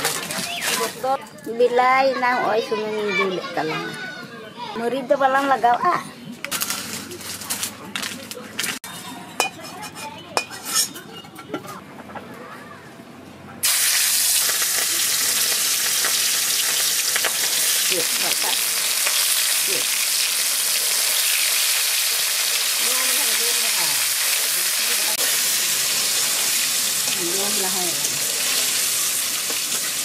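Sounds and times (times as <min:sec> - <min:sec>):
eggs sizzling in hot oil: 0:13.6 - 0:30.0.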